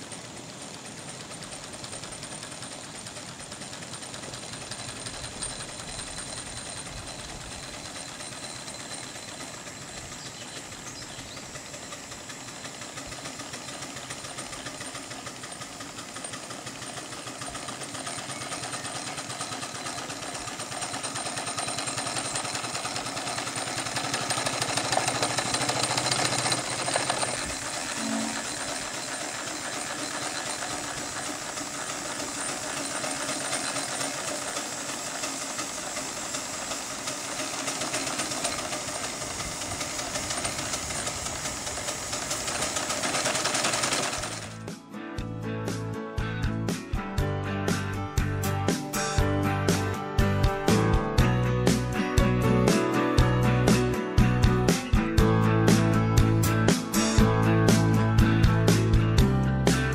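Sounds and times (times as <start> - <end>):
model steam engine clattering: 0.0 - 44.6.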